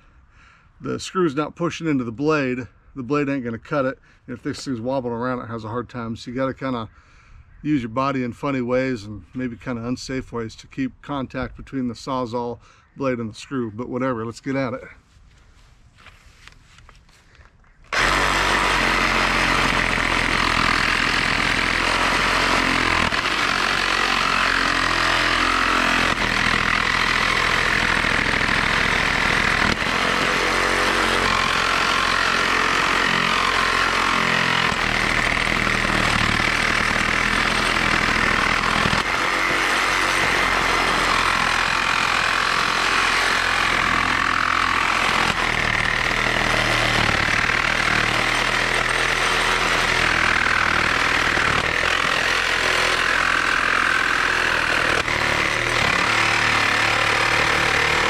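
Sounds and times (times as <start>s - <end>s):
reciprocating saw cutting screws: 17.9s - 58.0s.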